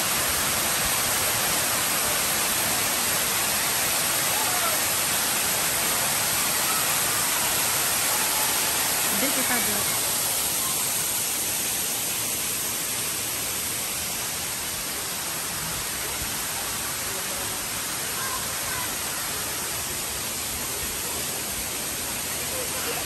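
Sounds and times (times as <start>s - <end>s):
waterfall hissing: 0.0s - 23.0s.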